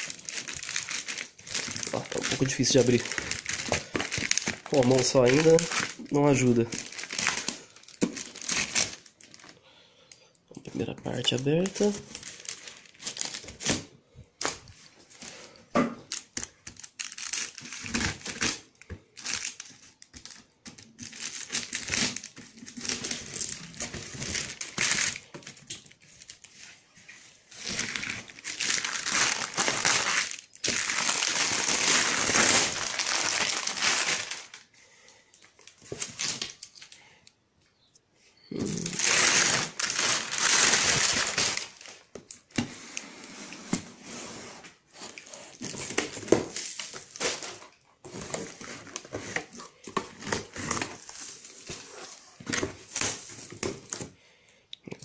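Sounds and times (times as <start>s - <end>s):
plastic wrap crinkling and tearing: 0.0s - 9.6s, 10.8s - 15.4s, 16.0s - 34.7s, 35.3s - 37.0s, 38.6s - 42.6s, 45.0s - 54.2s.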